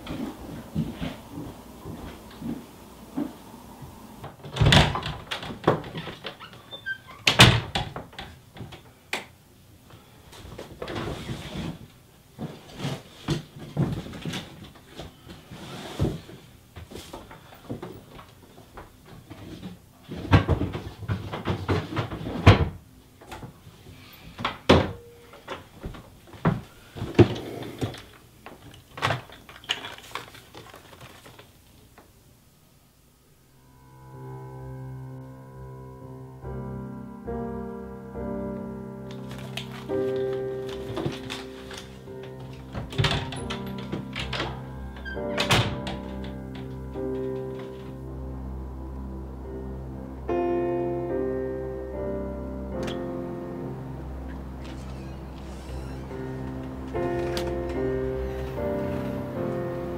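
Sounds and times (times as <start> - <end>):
wooden doors and drawers opening: 0.0 - 8.8, 39.1 - 48.1, 52.8 - 53.2, 53.9 - 59.9
rustling: 25.2 - 32.1, 39.0 - 48.2.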